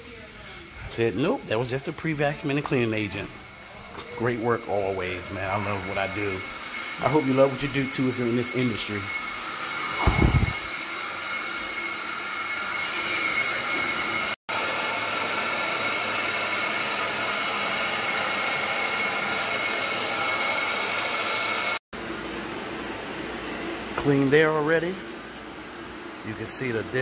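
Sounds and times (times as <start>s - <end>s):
vacuum hiss and whine: 0.0s - 27.0s
low thud: 10.0s - 10.6s.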